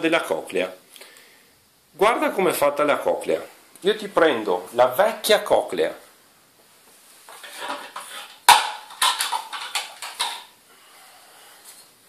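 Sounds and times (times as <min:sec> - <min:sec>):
plastic parts knocking: 0:07.4 - 0:10.5.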